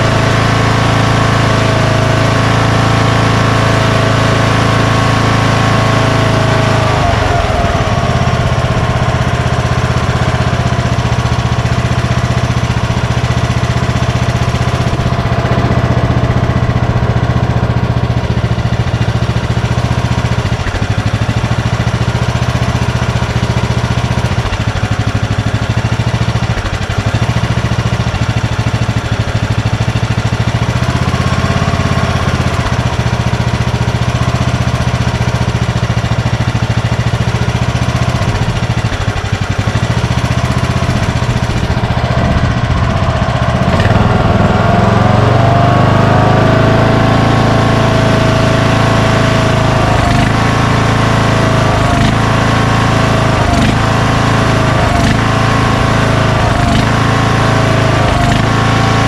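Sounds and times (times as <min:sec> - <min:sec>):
lawn tractor engine running: 0:00.0 - 0:59.0.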